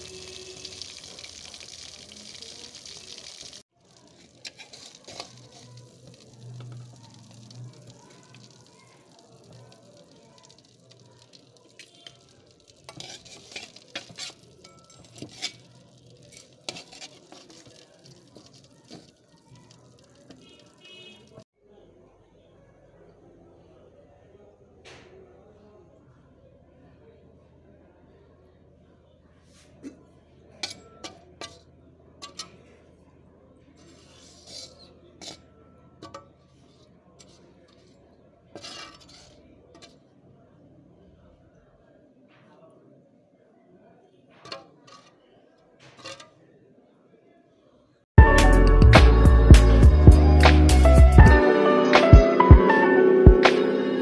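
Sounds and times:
metal spatula scraping pan: 0:00.0 - 0:02.0, 0:02.8 - 0:08.7, 0:10.4 - 0:20.8, 0:30.6 - 0:32.7, 0:33.7 - 0:40.1, 0:44.4 - 0:45.2, 0:45.8 - 0:46.4
fish sizzling in hot oil: 0:00.0 - 0:21.4.

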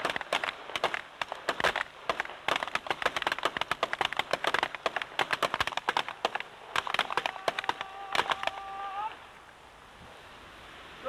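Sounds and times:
pistol shots cracking: 0:00.0 - 0:08.5.

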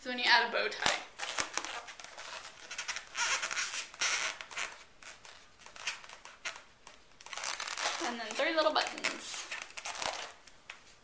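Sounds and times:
marker squeaking on balloon: 0:01.2 - 0:10.4.

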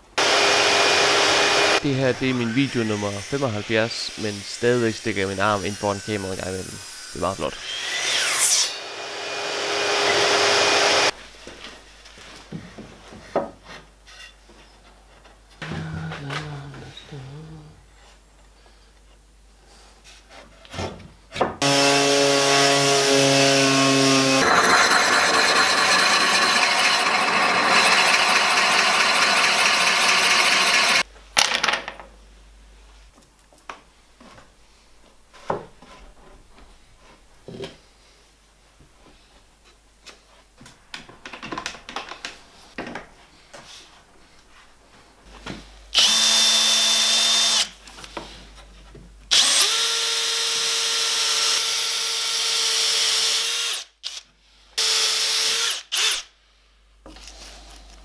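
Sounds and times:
cordless drill boring into wood: 0:09.6 - 0:11.1, 0:21.6 - 0:31.0, 0:46.0 - 0:47.7, 0:49.3 - 0:54.2, 0:54.8 - 0:56.3.

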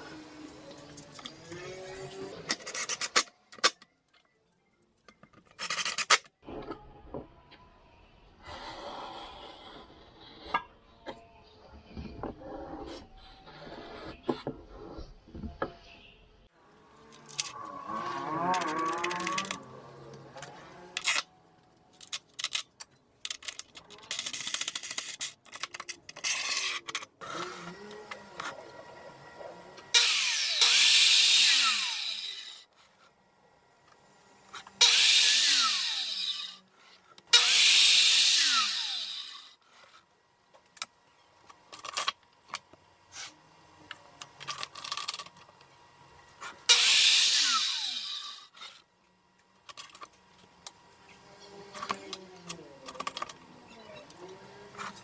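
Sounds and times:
saw motor winding down: 0:16.7 - 0:21.2, 0:27.2 - 0:28.9, 0:29.9 - 0:32.7, 0:34.2 - 0:36.7, 0:37.3 - 0:39.6, 0:46.7 - 0:48.8
circular saw cutting board: 0:29.7 - 0:33.1, 0:33.9 - 0:40.0, 0:46.4 - 0:48.9.

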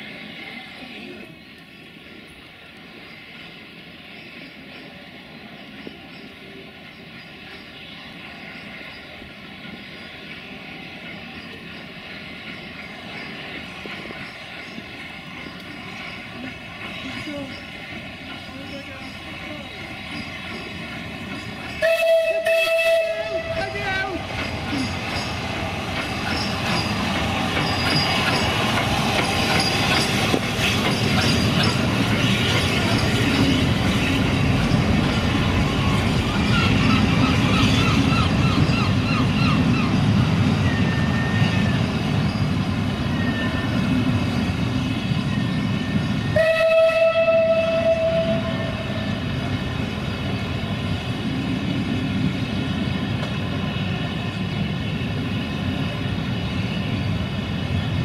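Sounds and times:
steam train rumbling past: 0:00.0 - 0:58.0
wheels clattering on rails: 0:05.6 - 0:58.0
train whistle: 0:21.8 - 0:23.8, 0:46.3 - 0:49.1.

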